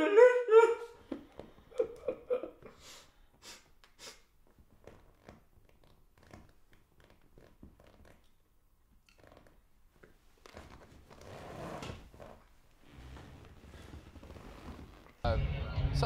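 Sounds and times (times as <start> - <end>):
man sobbing: 0.0 - 2.9
man sniffing: 2.7 - 4.4.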